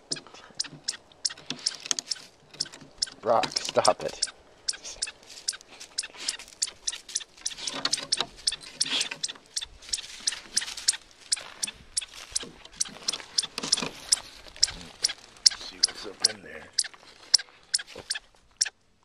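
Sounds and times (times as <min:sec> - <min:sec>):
dog gnawing and scratching wood: 0:00.6 - 0:04.3, 0:05.0 - 0:09.6, 0:12.4 - 0:18.1
dog snuffling: 0:00.6 - 0:18.3.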